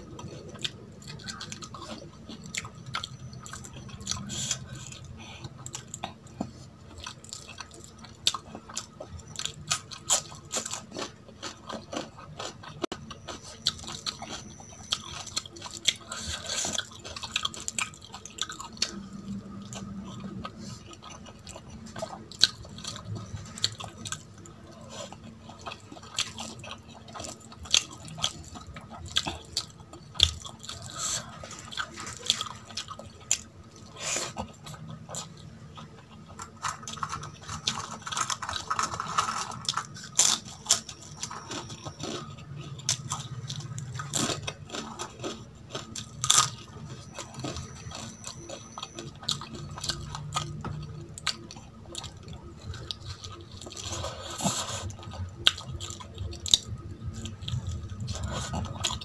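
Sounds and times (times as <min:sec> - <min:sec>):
crisp crackers crunching: 0:00.0 - 0:59.0
wet chewing: 0:00.0 - 0:59.0.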